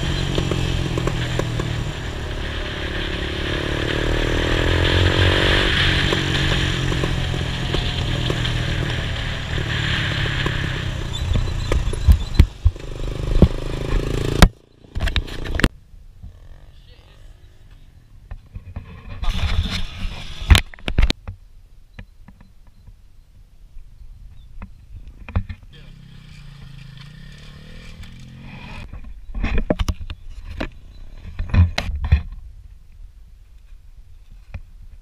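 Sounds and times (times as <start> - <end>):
quad engine running: 0.0 - 17.4, 25.8 - 28.9.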